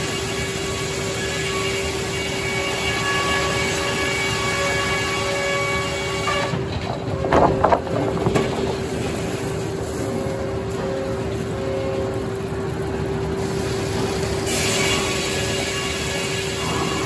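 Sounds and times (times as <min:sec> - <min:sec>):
sawmill machine tone: 0:00.0 - 0:17.0
saw blade high ringing whine: 0:14.4 - 0:17.0.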